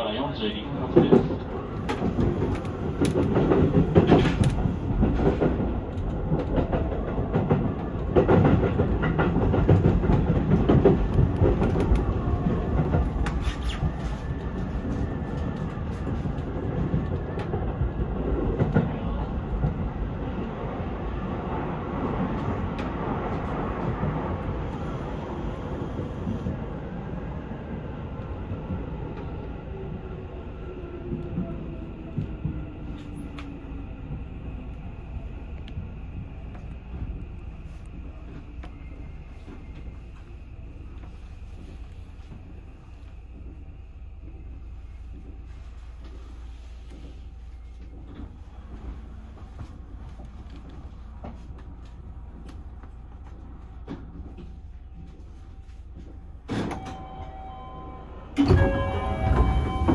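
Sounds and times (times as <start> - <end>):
train wheels clattering over rail joints: 0.9 - 12.0.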